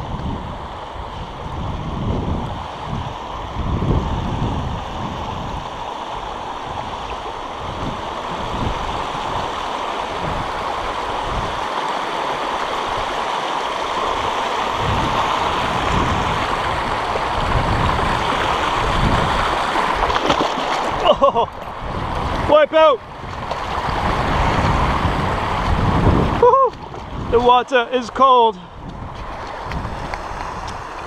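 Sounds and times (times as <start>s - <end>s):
river water rushing over rocks: 0.0s - 31.0s.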